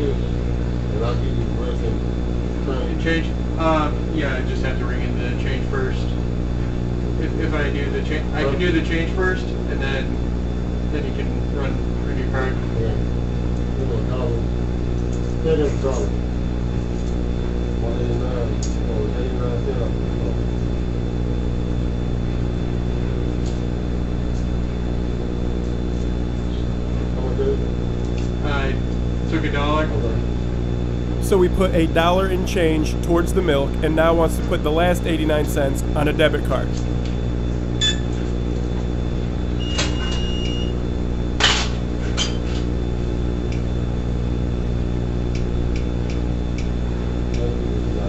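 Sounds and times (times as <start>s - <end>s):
low electrical hum: 0.0s - 48.0s
high whine: 31.1s - 36.9s
held electronic beep: 37.8s - 38.1s.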